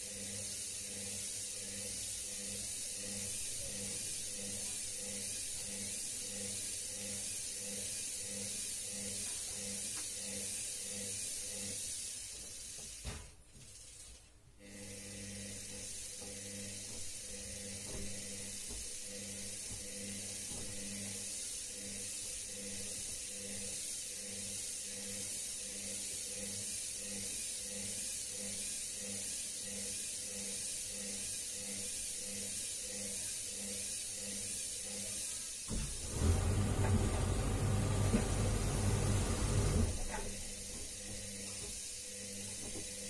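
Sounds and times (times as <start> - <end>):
washing machine drum turning: 35.7 - 41.2.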